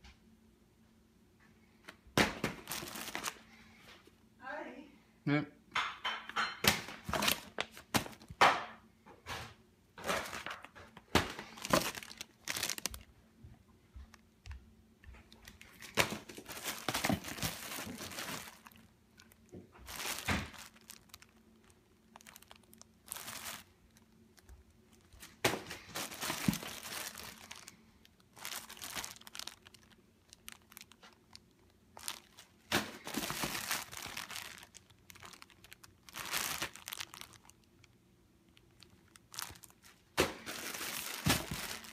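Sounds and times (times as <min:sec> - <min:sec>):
plastic bags crinkling: 0:02.2 - 0:03.7, 0:06.4 - 0:08.7, 0:10.0 - 0:13.2, 0:15.3 - 0:41.9.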